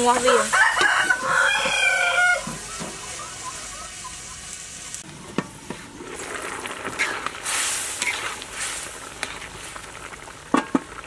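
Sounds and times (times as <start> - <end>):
food sizzling in wok: 0.0 - 11.0
metal spatula scraping wok: 5.4 - 9.8.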